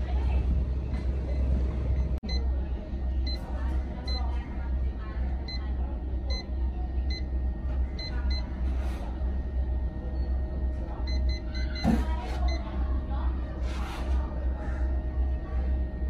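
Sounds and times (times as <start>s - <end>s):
low construction rumble: 0.0s - 16.0s.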